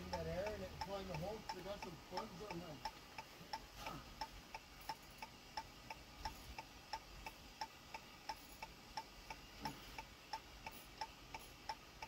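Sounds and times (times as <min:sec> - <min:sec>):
car indicator ticking: 0:00.0 - 0:03.6.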